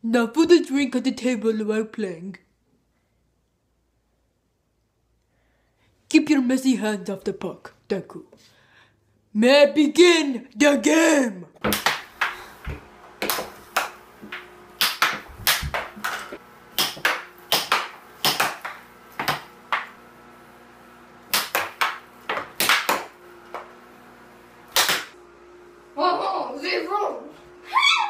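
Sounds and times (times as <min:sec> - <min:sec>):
air hockey puck clacking: 0:11.6 - 0:12.5, 0:13.2 - 0:20.0, 0:21.3 - 0:23.7
blower fan hum: 0:11.6 - 0:28.0.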